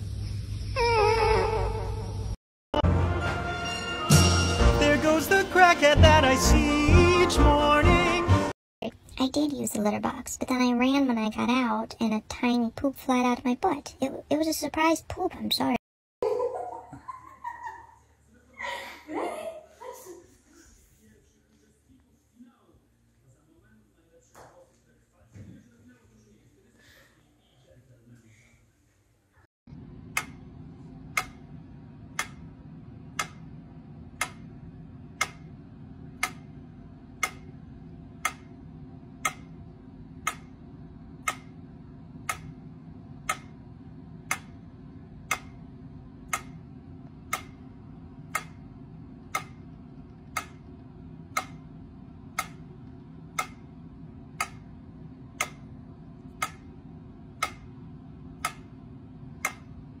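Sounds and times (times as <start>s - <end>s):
metronome ticking: 31.1s - 31.6s, 32.2s - 32.5s, 33.1s - 33.6s, 34.2s - 34.6s, 35.2s - 36.6s, 37.2s - 37.6s, 38.2s - 38.6s, 39.2s - 39.6s, 40.2s - 40.6s, 41.2s - 41.6s, 42.2s - 42.6s, 43.2s - 43.6s, 44.2s - 44.6s, 45.2s - 45.6s, 46.3s - 50.7s, 51.3s - 59.8s.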